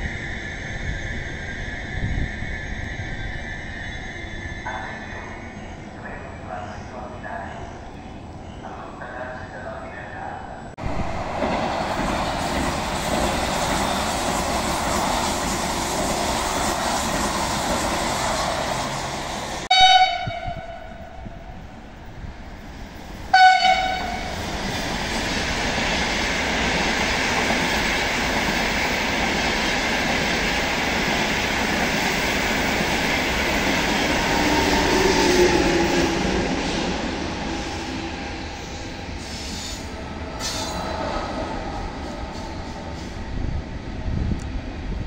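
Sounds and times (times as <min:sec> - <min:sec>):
high-speed trains passing: 0:00.0 - 0:45.0
train horn blasts: 0:19.7 - 0:21.3, 0:23.3 - 0:24.3.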